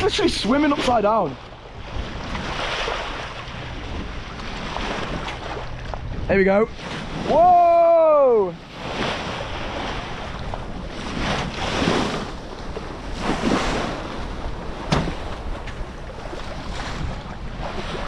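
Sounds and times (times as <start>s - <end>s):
water splashing past boat hull: 0.0s - 18.0s
wind buffeting microphone: 0.0s - 18.0s.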